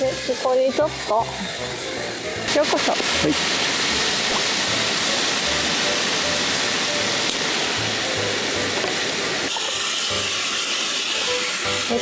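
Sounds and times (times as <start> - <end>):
faint background music: 0.0 - 12.0
meat sizzling on griddle: 0.0 - 12.0.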